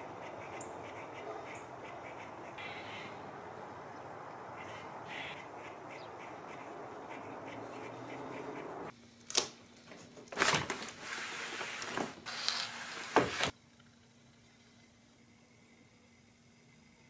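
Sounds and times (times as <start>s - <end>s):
background hiss: 10.9s - 17.0s.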